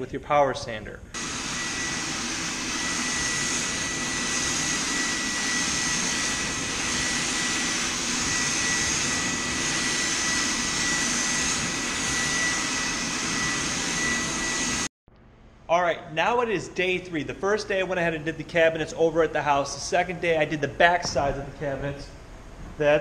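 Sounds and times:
spray gun hissing: 1.2s - 14.9s
thin high whine: 1.2s - 14.9s.

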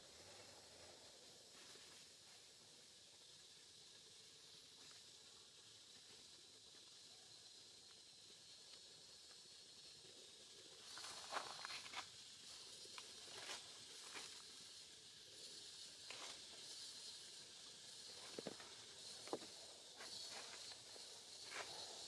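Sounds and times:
faint steady hiss: 0.0s - 22.0s
rustles on dry leaf litter: 10.8s - 22.0s.

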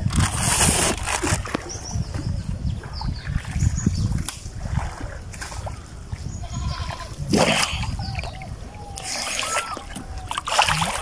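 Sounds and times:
river water splashing: 0.9s - 6.3s, 6.9s - 11.0s
faint distant calls: 5.0s - 11.0s.

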